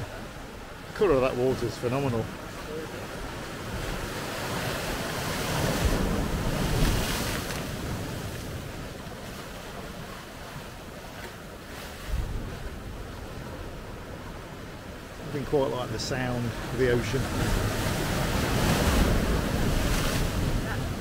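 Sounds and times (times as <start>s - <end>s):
waves breaking against rocks: 0.0s - 21.0s
wind buffeting microphone: 2.3s - 10.6s, 11.4s - 15.2s, 16.5s - 21.0s.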